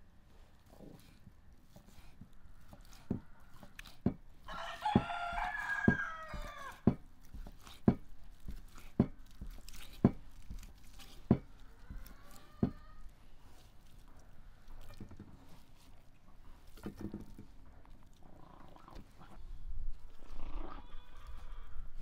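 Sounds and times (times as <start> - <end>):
rooster crowing: 4.5 - 6.9, 11.7 - 13.0.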